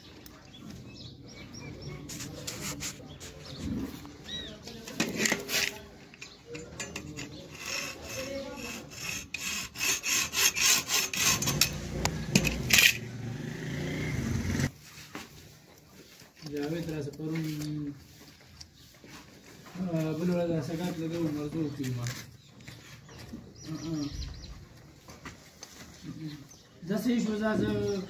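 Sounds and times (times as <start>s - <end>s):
rhythmic scraping on metal: 4.9s - 13.1s
metal clinking on metal: 5.2s - 7.5s.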